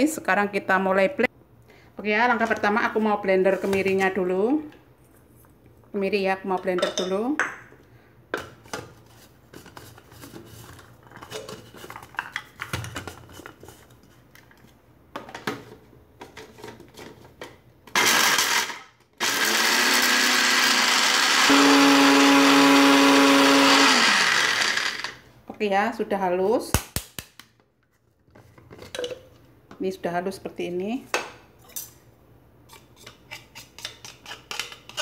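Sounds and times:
blender motor grinding: 18.0s - 25.2s.

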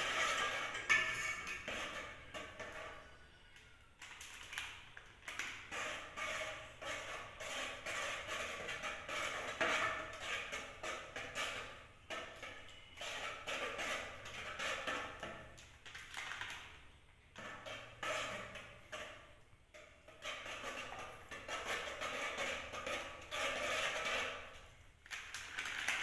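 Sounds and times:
whisk clinking in metal pot: 0.0s - 3.0s.

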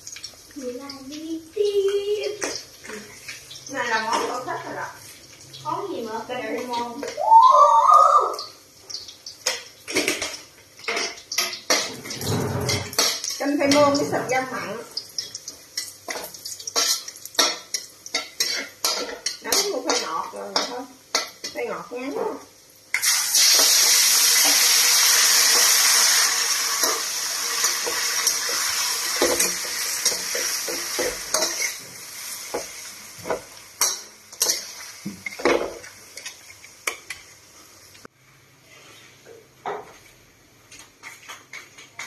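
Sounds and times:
meat sizzling in hot oil: 0.0s - 38.0s
garlic frying in oil: 0.0s - 38.1s
metal spatula scraping wok: 9.5s - 14.8s, 15.8s - 21.6s, 23.4s - 35.5s.

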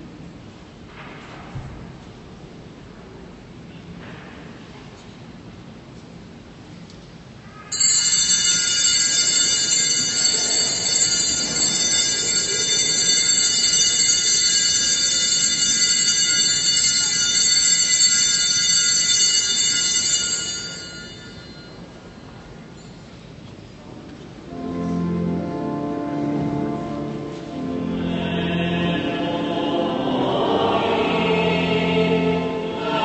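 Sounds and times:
altar bells ringing: 7.7s - 23.0s.

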